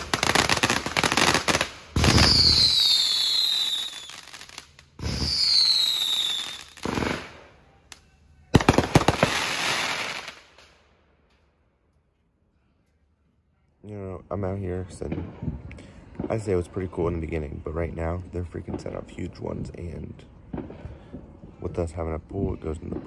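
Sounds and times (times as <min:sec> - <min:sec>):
firework bangs and crackle: 0:00.0 - 0:10.8, 0:14.8 - 0:23.0
firework falling whistle: 0:02.0 - 0:04.2, 0:05.0 - 0:06.8
sharp firework pops: 0:20.5 - 0:21.3.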